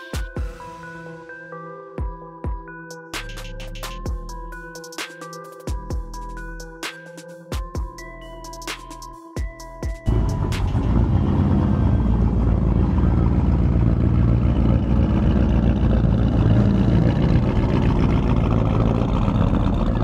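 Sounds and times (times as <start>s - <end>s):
pickup truck engine rumble: 10.1s - 20.0s.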